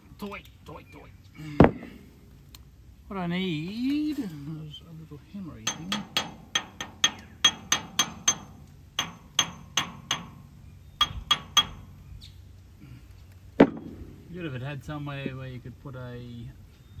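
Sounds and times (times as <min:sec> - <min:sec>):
metal tool tapping metal: 0:05.6 - 0:10.4, 0:11.0 - 0:11.9.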